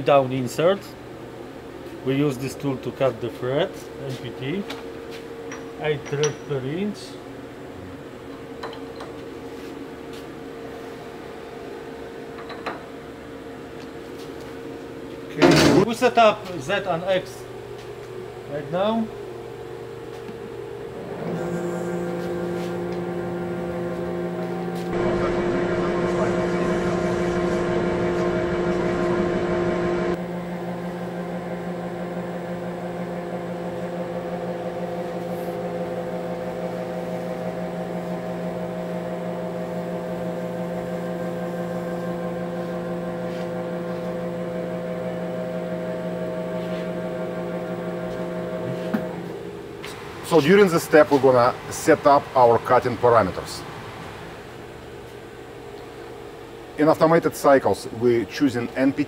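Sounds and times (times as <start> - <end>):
lathe spindle running: 18.1 - 56.5.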